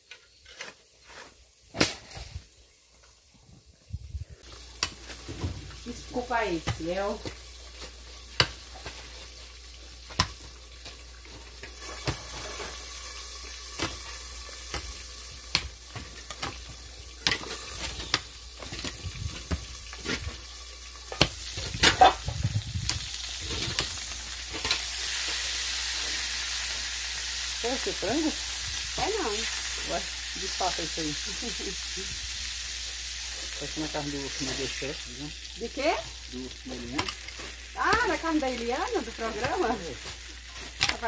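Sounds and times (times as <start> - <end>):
food sizzling in a pan: 0.0 - 41.0.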